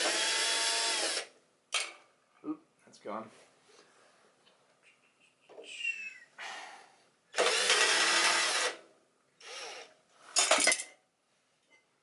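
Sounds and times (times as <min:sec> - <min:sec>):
cordless drill running: 0:00.0 - 0:01.3, 0:07.4 - 0:08.8, 0:09.4 - 0:09.9.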